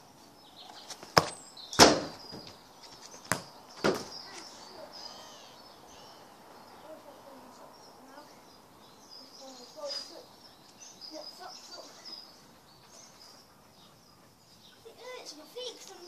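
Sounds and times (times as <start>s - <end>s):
birds chirping faintly: 0.0s - 16.0s
football kick thuds: 1.1s - 2.5s, 3.2s - 4.2s.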